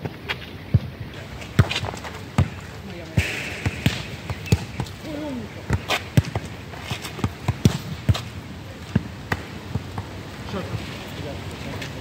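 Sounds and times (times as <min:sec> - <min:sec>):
volleyball thudding on asphalt: 0:00.7 - 0:10.2.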